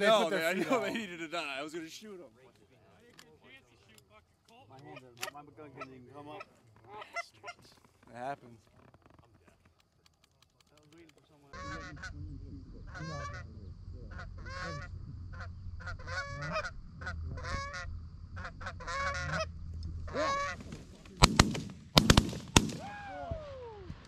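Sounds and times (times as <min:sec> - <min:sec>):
goose honks: 0:11.5 - 0:12.2, 0:12.9 - 0:19.5, 0:20.1 - 0:20.6
shotgun blasts: 0:21.2 - 0:23.0.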